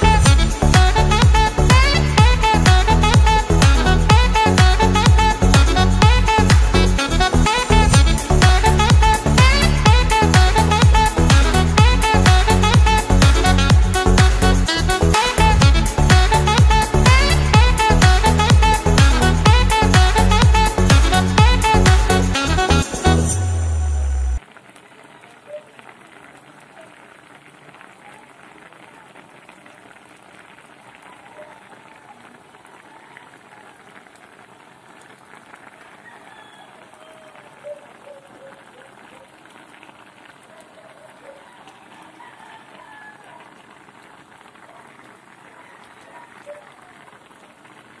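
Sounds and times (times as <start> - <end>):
background music: 0.0 - 24.4
coconut milk boiling: 24.4 - 48.0
stew bubbling at a simmer: 24.4 - 48.0.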